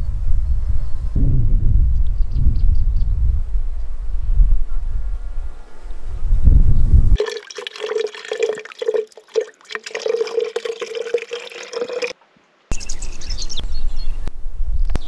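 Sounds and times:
low rumble: 0.1s - 5.0s
water trickling into plastic bottle: 7.2s - 12.2s.

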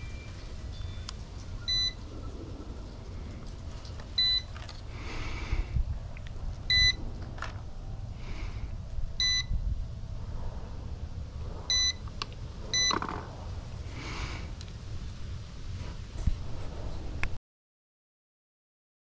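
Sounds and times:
short electronic beeps: 0.0s - 2.0s, 4.2s - 4.5s, 6.7s - 7.0s, 9.2s - 9.5s, 11.7s - 12.0s, 12.8s - 13.0s
wind rumble on microphone: 0.0s - 17.4s.

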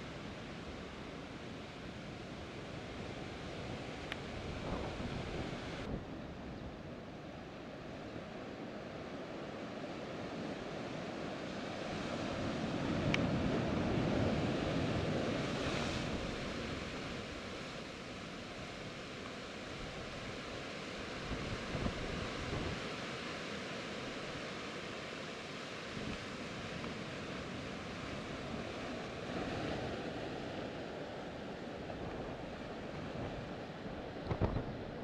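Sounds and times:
wind on microphone: 3.8s - 6.9s, 21.1s - 22.9s, 31.8s - 35.0s
sea surf washing against rock: 18.6s - 35.0s.

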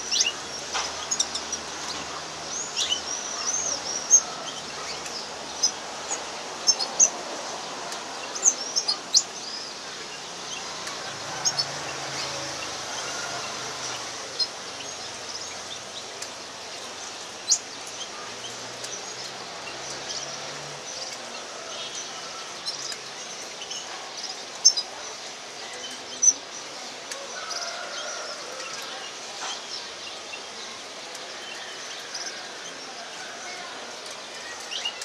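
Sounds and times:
bird high-pitched ticks: 10.6s - 11.8s, 33.9s - 35.0s.

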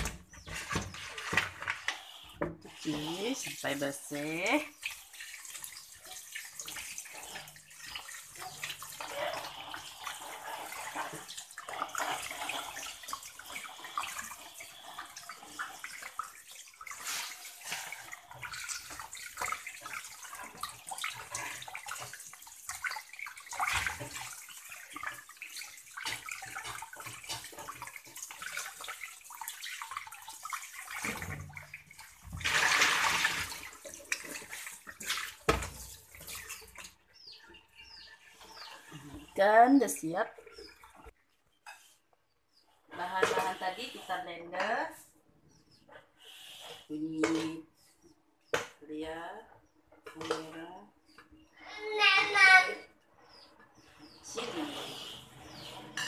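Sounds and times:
water rushing from basin: 0.0s - 37.3s
hands rinsing fish with splashing: 0.0s - 41.1s
tap water running into basin: 0.0s - 41.2s, 42.9s - 45.0s.

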